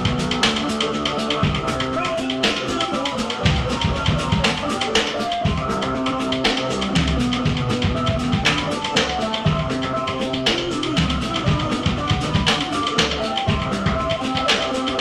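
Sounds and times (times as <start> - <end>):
buzzing keyboard notes: 0.0 - 15.0
drums beating busy rhythm: 0.0 - 15.0.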